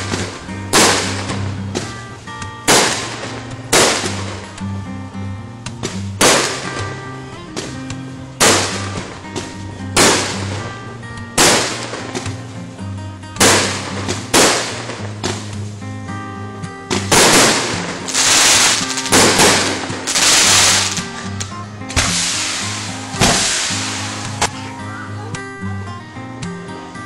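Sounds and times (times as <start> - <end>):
firework bangs with hiss: 0.0 - 1.9, 2.7 - 4.6, 5.8 - 6.9, 8.4 - 10.7, 11.4 - 12.4, 13.4 - 15.7, 16.9 - 24.6
background music: 0.0 - 27.0.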